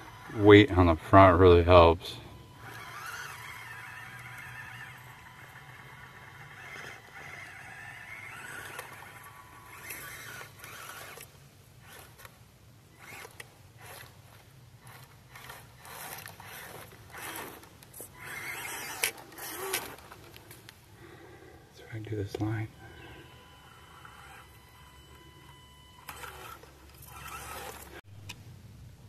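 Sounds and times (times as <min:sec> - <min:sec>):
small electric motor whining: 0:00.0 - 0:28.0
brush and stones scraping: 0:13.0 - 0:20.7.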